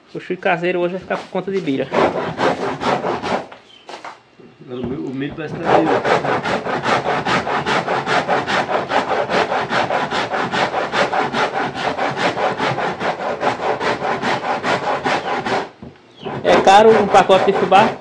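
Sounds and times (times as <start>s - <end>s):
corn rasping on a grater: 5.5s - 18.0s.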